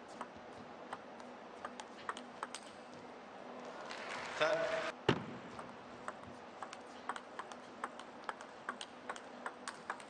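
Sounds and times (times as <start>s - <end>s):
table tennis ball ticking: 5.6s - 10.0s.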